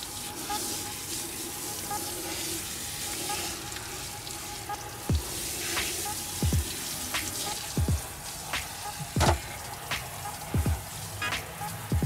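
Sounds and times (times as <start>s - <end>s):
background music: 0.0s - 12.0s
water hissing from spray wand: 0.0s - 12.0s
deep bass drum: 6.4s - 6.7s, 7.8s - 8.0s, 10.6s - 10.9s.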